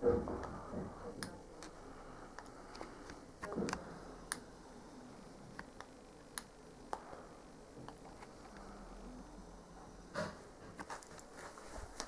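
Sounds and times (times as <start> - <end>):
soft rustle: 10.8 - 12.0.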